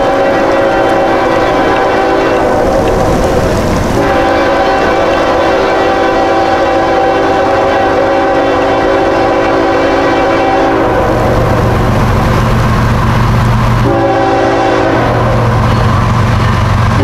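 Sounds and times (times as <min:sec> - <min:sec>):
locomotive air horn blasts: 0:00.0 - 0:02.8, 0:04.0 - 0:11.6, 0:13.8 - 0:16.1
diesel locomotive rumble: 0:00.0 - 0:17.0.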